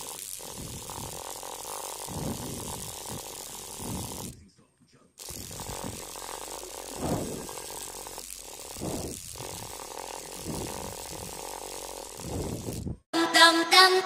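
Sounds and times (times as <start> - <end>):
tattoo machine motor buzzing: 0.0 - 4.4, 5.2 - 13.1.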